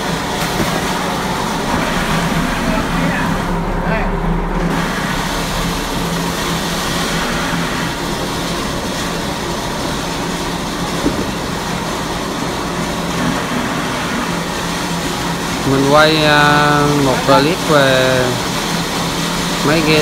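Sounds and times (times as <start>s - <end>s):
vehicle engine running: 0.9s - 13.4s.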